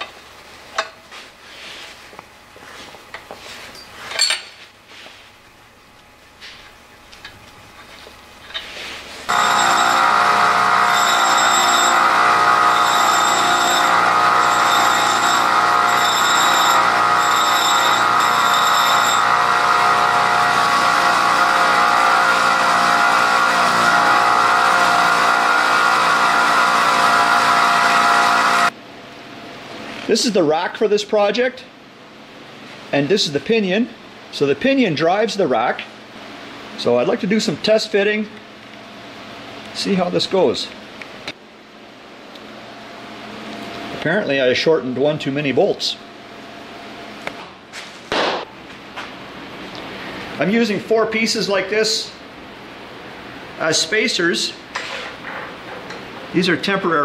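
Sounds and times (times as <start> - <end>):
bench grinder motor whine: 9.3 - 28.7
metal grinding on wheel: 9.3 - 28.7.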